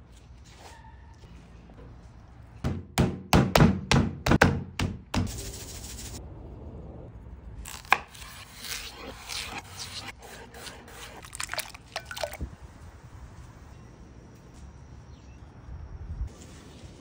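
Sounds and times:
seasoning shaken hissing: 5.3s - 6.2s.

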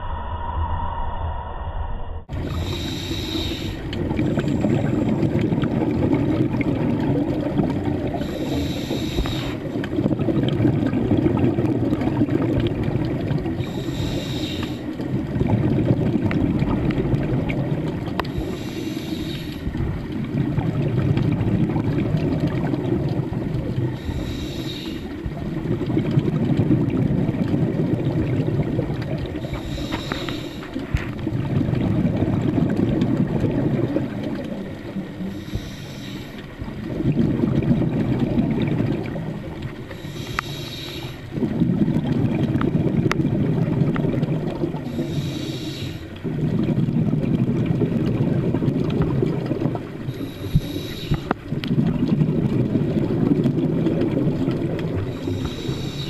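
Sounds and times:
regulator inhale hiss: 0.0s - 4.0s, 8.1s - 9.7s, 13.6s - 15.0s, 18.2s - 19.8s, 23.9s - 25.4s, 29.4s - 30.9s, 35.2s - 36.6s, 39.8s - 41.4s, 44.8s - 46.2s, 50.0s - 51.4s, 55.1s - 56.0s
exhaled bubbles rumbling: 0.0s - 56.0s.

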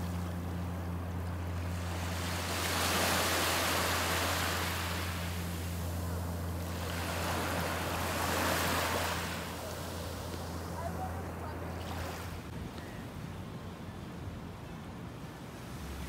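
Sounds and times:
steady low hum: 0.0s - 15.8s
waves washing up a beach: 1.5s - 12.6s.

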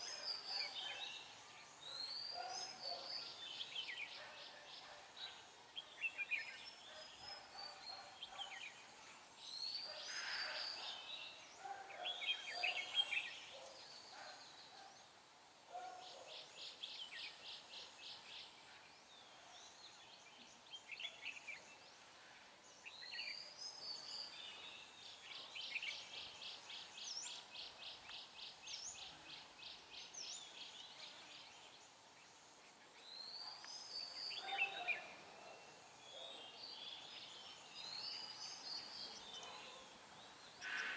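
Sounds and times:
birds calling in chirpy phrases: 9.7s - 18.6s, 22.8s - 40.9s.

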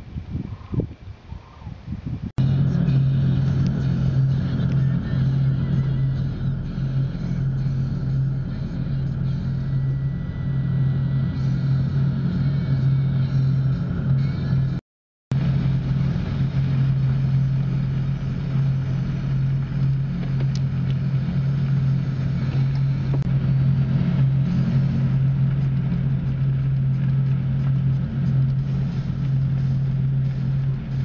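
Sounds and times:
vehicle engine humming: 1.6s - 31.0s.

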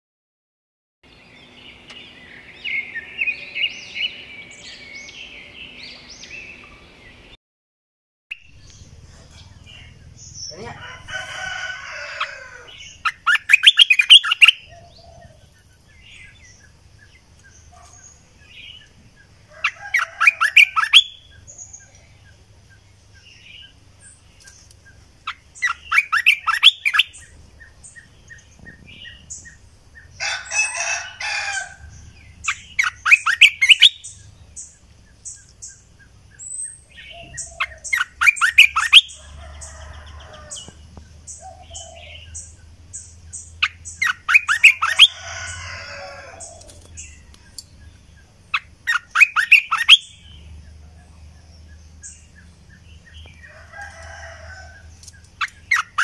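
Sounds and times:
bird calling rapid notes: 48.6s - 50.1s.

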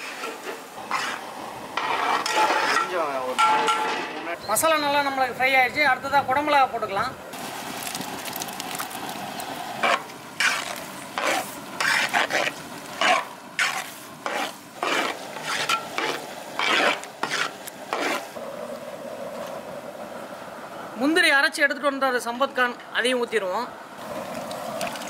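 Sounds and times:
spatula scraping metal pot: 0.0s - 1.2s, 1.8s - 3.9s, 9.8s - 18.3s
low frying sizzle: 0.0s - 5.5s, 7.3s - 20.0s, 24.0s - 25.0s.

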